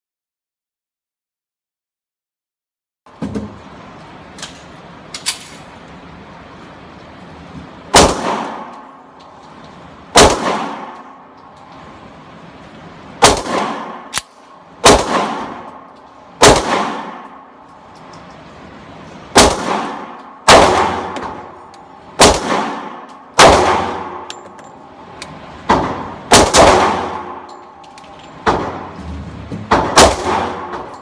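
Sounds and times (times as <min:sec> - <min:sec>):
pistol shots ringing indoors: 0:07.9 - 0:12.0, 0:13.1 - 0:18.3, 0:19.2 - 0:29.0, 0:29.7 - 0:31.0.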